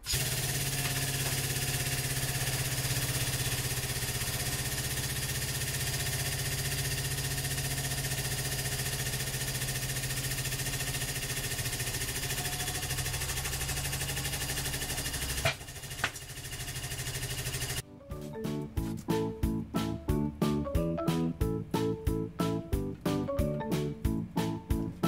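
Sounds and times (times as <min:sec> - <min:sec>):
hydraulic press humming and pulsing: 0:00.0 - 0:17.8.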